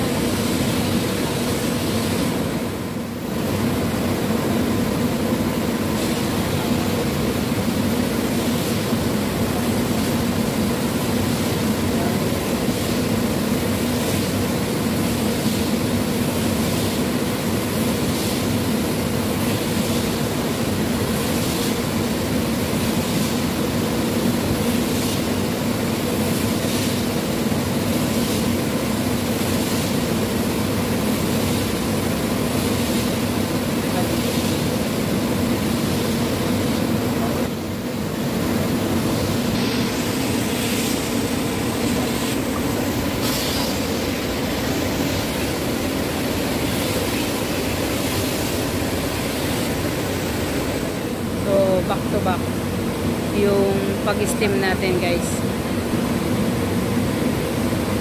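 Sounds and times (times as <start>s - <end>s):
vacuum cleaner humming: 36.8s - 52.3s.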